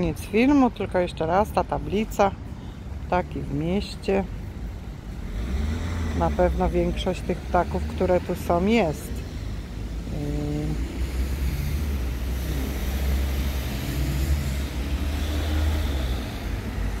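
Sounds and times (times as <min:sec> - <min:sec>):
street traffic rumble: 0:00.0 - 0:17.0.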